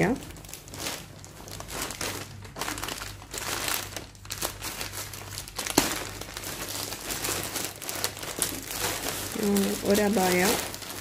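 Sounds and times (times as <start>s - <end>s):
plastic bag crinkling: 0.0s - 11.0s
plastic bag snap: 5.4s - 10.8s.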